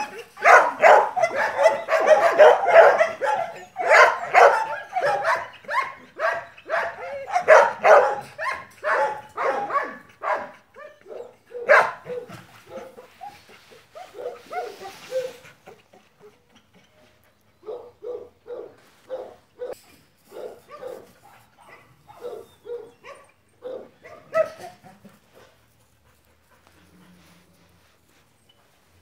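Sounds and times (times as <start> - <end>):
dog barking: 0.4 - 12.9, 17.6 - 24.7.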